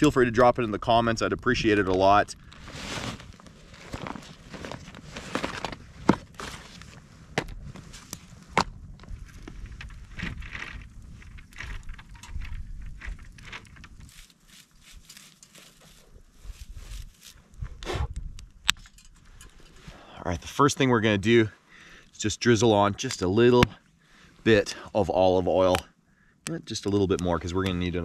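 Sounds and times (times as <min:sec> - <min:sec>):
wood fire crackling: 0:00.0 - 0:20.4
rustling: 0:02.4 - 0:08.6, 0:09.2 - 0:17.7
footsteps: 0:13.0 - 0:17.8.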